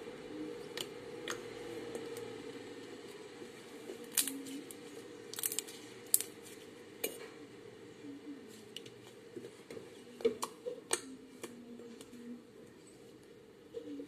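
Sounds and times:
slime squishing: 3.9 - 7.2
slime popping and crackling: 4.1 - 4.6, 5.3 - 6.4.

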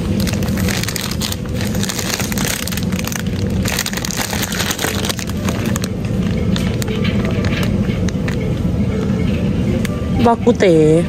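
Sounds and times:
plastic wrapping crackling: 0.0 - 8.5
low background hum: 0.0 - 11.0.

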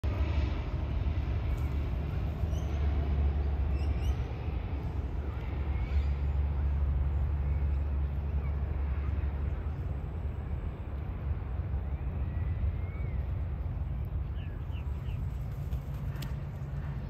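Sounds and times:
steady low rumble: 0.0 - 17.0
faint bird chirps: 11.8 - 15.3.

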